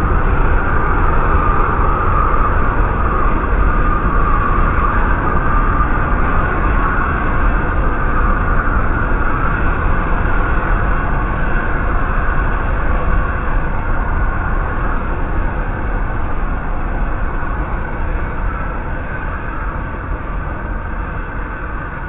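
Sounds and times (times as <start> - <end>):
deep rumble: 0.0 - 22.0.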